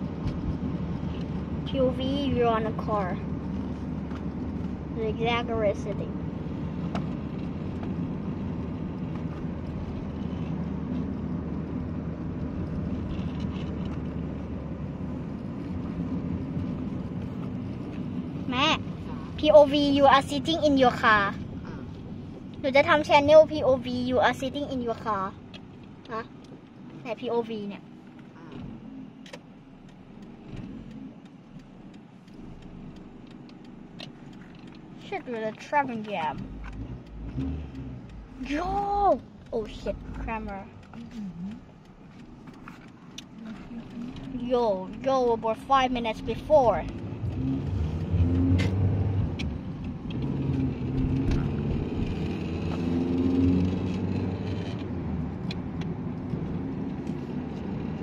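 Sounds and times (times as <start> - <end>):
car engine running: 0.0 - 58.0
light ticks: 27.8 - 46.2, 48.7 - 51.6.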